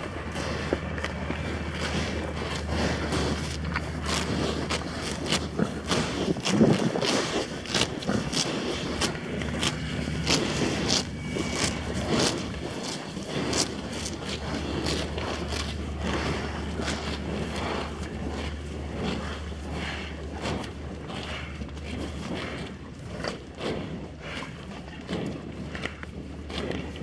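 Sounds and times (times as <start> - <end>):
cows tearing grass: 0.0 - 27.0.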